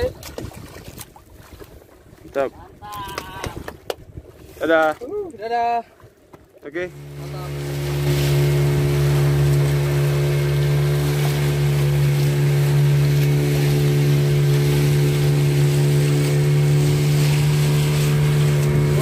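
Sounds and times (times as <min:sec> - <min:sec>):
boat engine droning: 0:06.0 - 0:19.0.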